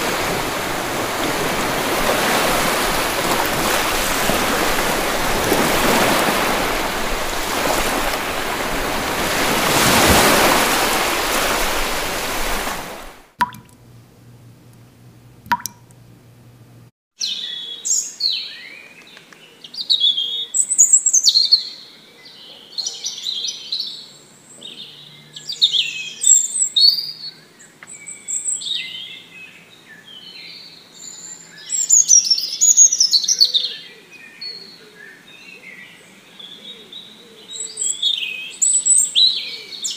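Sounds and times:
songbirds chirping and singing: 0:17.2 - 0:39.9.

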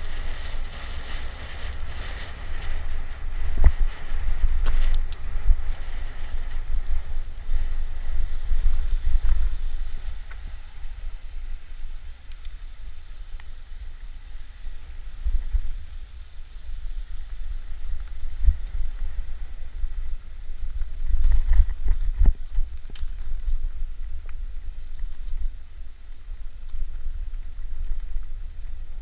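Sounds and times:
wind buffeting microphone: 0:00.0 - 0:29.0
faint clicks: 0:12.2 - 0:12.7, 0:13.3 - 0:14.1.

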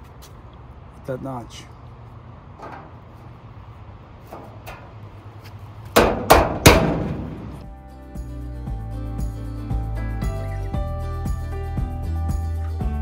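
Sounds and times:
steel panel ringing: 0:02.6 - 0:03.1, 0:04.3 - 0:05.0, 0:06.0 - 0:07.6.

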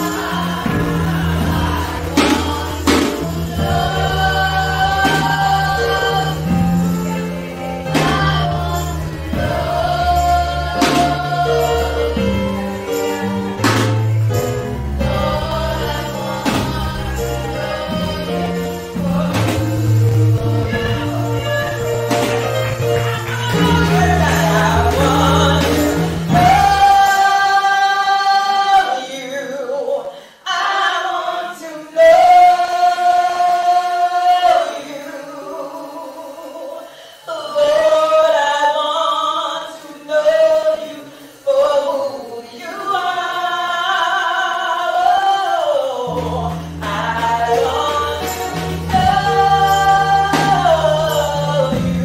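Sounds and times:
gospel choir singing: 0:00.0 - 0:52.0
low bass backing: 0:00.6 - 0:27.0.

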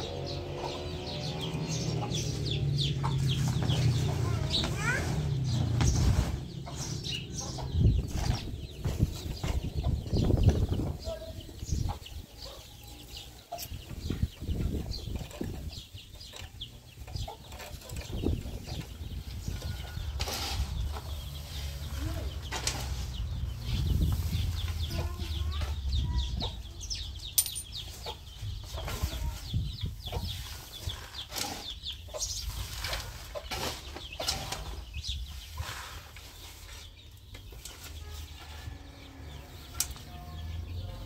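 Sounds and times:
chickens clucking: 0:00.0 - 0:41.0
shovel scraping soil: 0:20.0 - 0:21.2, 0:30.4 - 0:31.8, 0:32.4 - 0:34.8, 0:35.4 - 0:36.9.

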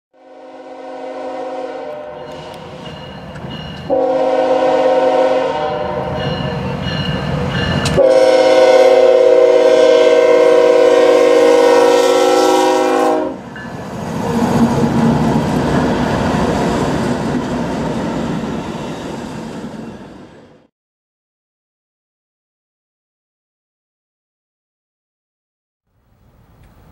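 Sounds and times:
train horn blasts: 0:00.2 - 0:02.7, 0:03.9 - 0:06.6, 0:07.8 - 0:13.5
train rumble and wheel clatter: 0:01.8 - 0:20.7.

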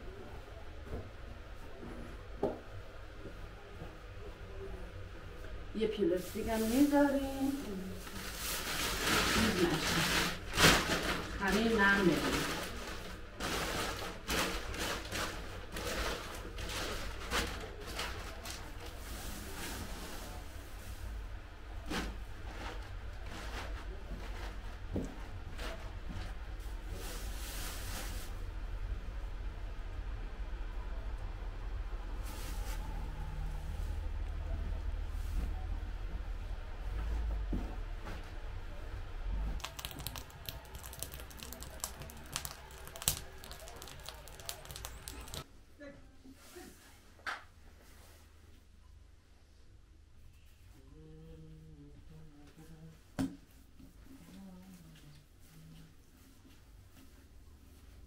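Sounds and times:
plastic sheet rustling: 0:06.1 - 0:21.0, 0:39.6 - 0:45.5
fire crackling: 0:39.5 - 0:45.5.

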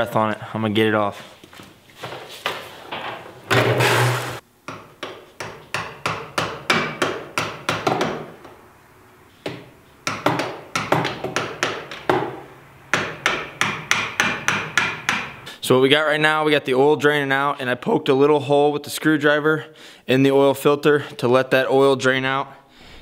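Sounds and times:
hammer striking metal: 0:10.0 - 0:15.4.

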